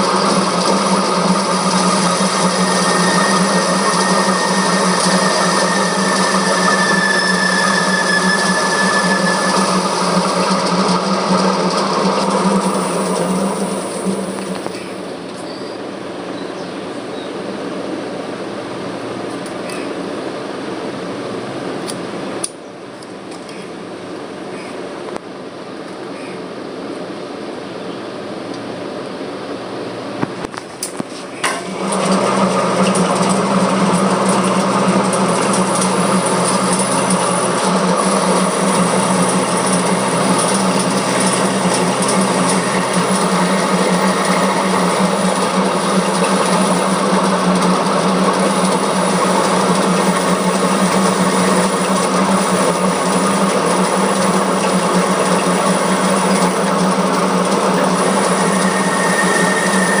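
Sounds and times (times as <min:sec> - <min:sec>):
lathe clicking into gear: 0:00.0 - 0:14.9, 0:30.5 - 1:00.0
metal lathe humming: 0:00.0 - 0:15.1, 0:31.5 - 1:00.0
thin whistle: 0:01.2 - 0:11.5, 0:58.0 - 1:00.0.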